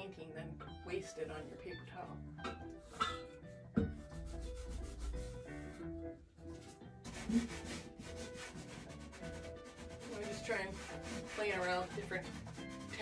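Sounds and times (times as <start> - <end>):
metal scraper scraping wet paint: 7.1 - 13.0.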